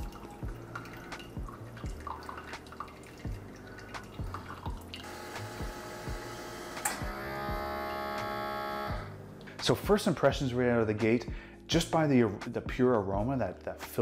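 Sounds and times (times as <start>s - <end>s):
coffee dripping and splashing: 0.0s - 5.4s
rhythmic pump pulsing: 3.1s - 9.0s
coffee maker hiss and hum: 4.0s - 9.4s.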